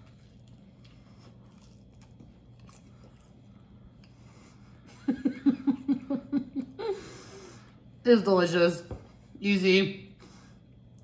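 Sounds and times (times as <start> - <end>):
person crunching crispy taco: 0.0 - 3.4
steady low hum: 0.0 - 11.0.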